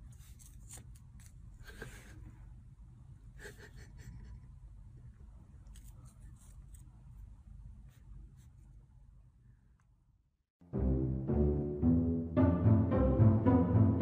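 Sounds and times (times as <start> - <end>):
low room hum: 0.0 - 10.4.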